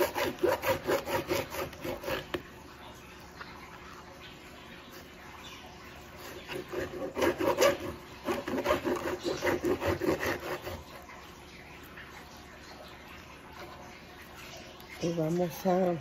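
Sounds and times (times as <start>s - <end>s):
knife sawing through fish: 0.0s - 2.5s, 6.1s - 11.1s.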